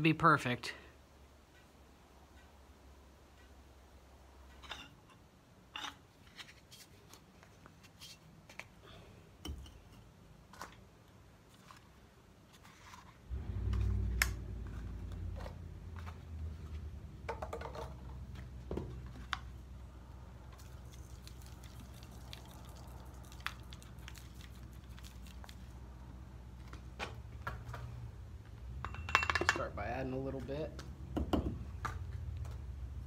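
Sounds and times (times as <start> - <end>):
low rumble: 13.3 - 16.9
containers clinking and knocking: 17.2 - 18.9, 28.8 - 29.7
liquid pouring: 20.6 - 25.6.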